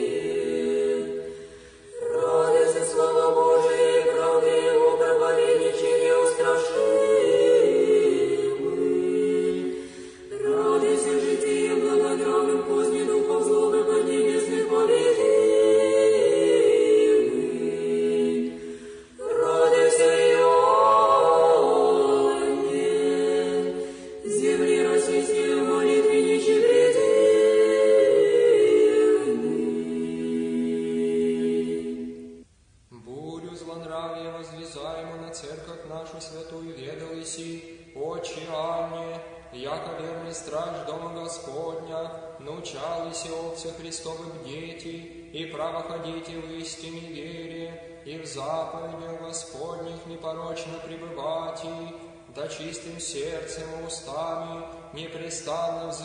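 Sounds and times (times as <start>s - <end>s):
unaccompanied choir chanting: 0.0s - 32.4s.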